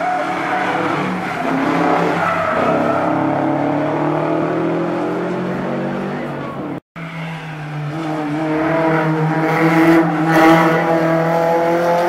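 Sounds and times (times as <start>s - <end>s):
rally car engine revving: 0.0s - 12.0s.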